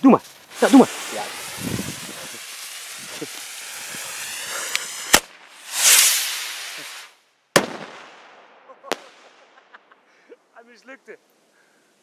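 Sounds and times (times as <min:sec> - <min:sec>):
firework spark hiss: 0:00.1 - 0:07.9
firework rushing whoosh: 0:00.3 - 0:08.3
firework bangs: 0:00.3 - 0:09.8.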